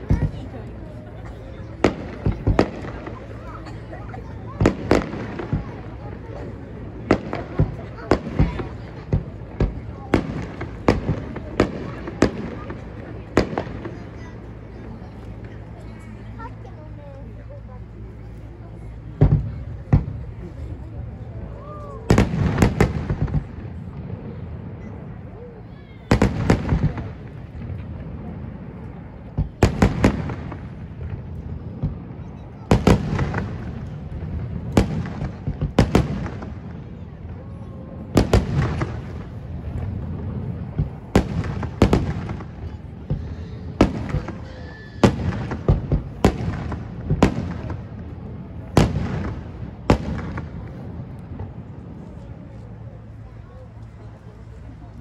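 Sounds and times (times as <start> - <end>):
firework shells booming: 38.2 - 51.6.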